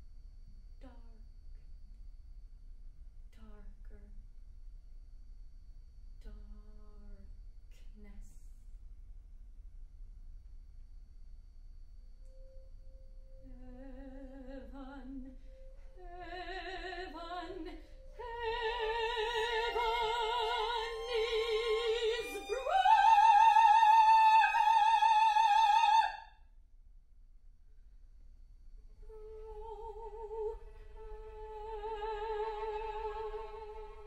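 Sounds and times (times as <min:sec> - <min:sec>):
soprano voice singing: 0:13.4 - 0:26.2, 0:29.1 - 0:34.0.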